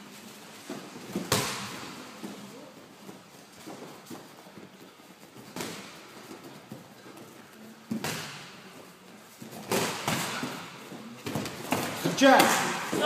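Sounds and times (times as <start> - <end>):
bare feet shuffling on a mat: 0.0 - 13.0
boxing gloves smacking: 9.5 - 13.0.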